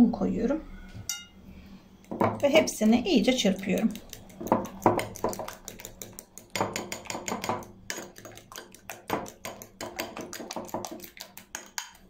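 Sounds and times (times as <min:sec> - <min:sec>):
liquid slapping: 0:02.1 - 0:12.0
fork clicking against glass bowl: 0:03.4 - 0:10.2, 0:10.9 - 0:12.0.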